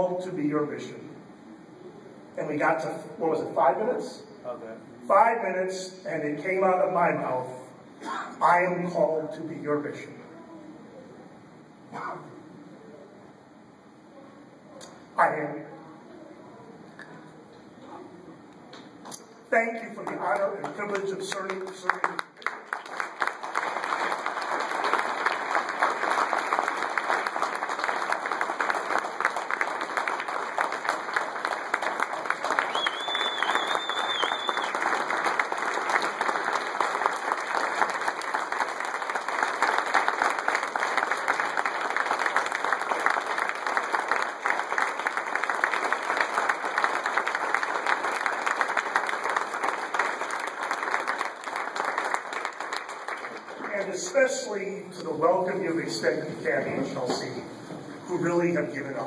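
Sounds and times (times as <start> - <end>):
audience applauding: 20.0 - 54.2.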